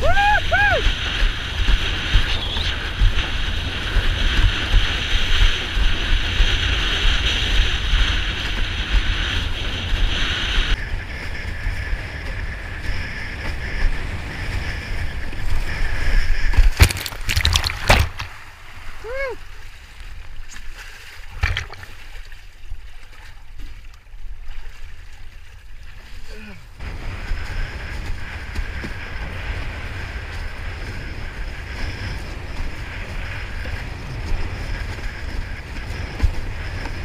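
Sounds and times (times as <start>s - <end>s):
wind buffeting microphone: 0.0s - 37.0s
sharp knocks and splashing: 16.5s - 18.7s, 20.0s - 26.2s.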